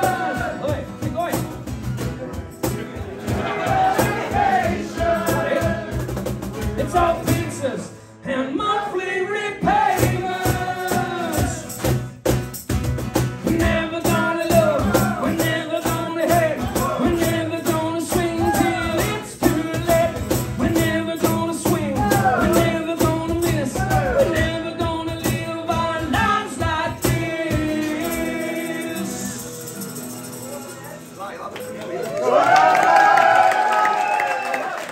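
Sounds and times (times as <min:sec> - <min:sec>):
strummed acoustic guitars: 0:00.0 - 0:31.6
person singing: 0:06.8 - 0:11.8, 0:13.4 - 0:30.6.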